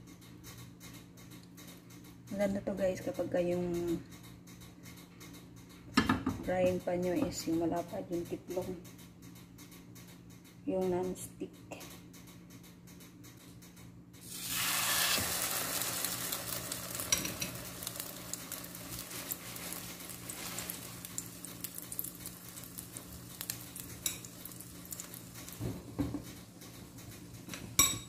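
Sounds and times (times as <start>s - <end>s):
small crackles: 11.8s - 27.7s
oil sizzling in frying pan: 14.2s - 26.1s.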